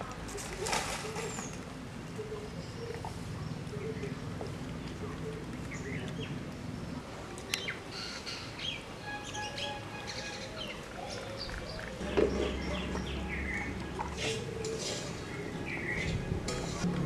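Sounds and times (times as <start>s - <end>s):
birds chirping and whistling: 7.5s - 16.9s.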